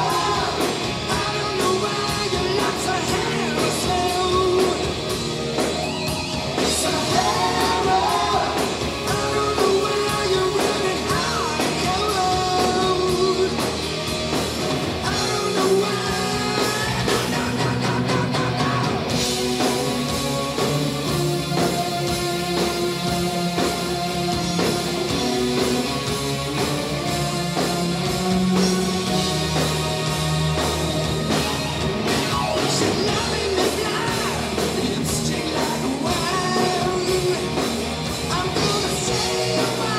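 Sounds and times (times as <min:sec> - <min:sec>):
man singing lead vocals: 0:00.0 - 0:05.2, 0:06.6 - 0:13.9, 0:15.0 - 0:19.2, 0:32.6 - 0:39.9
live hard rock band: 0:00.0 - 0:39.9.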